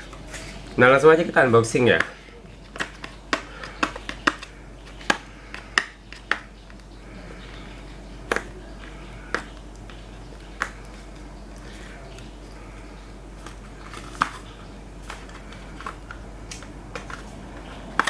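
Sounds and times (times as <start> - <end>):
packaging clicks and taps: 1.9 - 6.9.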